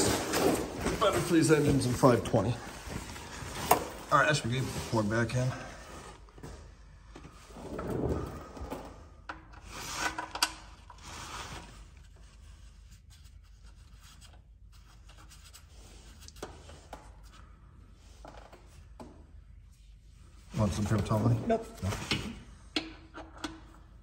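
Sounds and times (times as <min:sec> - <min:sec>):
gloved hand rubbing and rustling: 0:00.0 - 0:07.1.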